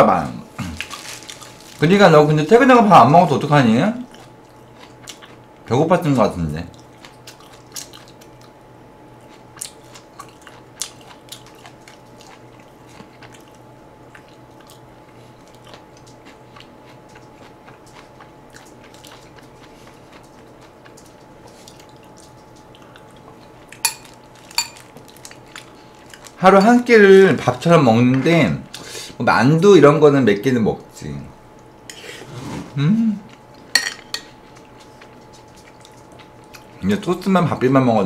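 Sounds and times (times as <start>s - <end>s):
faint hum: 0.0s - 38.0s
quiet chewing: 4.0s - 5.7s, 6.7s - 8.6s, 9.2s - 26.4s, 33.3s - 36.8s.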